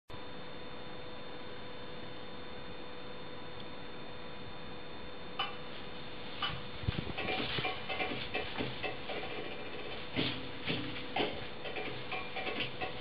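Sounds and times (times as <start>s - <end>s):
electrical hum and whine: 0.1s - 13.0s
steady hiss: 5.4s - 13.0s.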